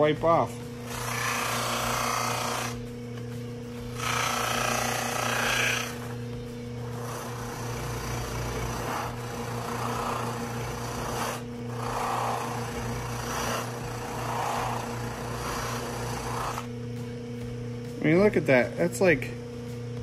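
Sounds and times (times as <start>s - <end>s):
buffing motor humming: 0.6s - 17.6s
plastic rasping on buffing wheel: 6.9s - 16.7s.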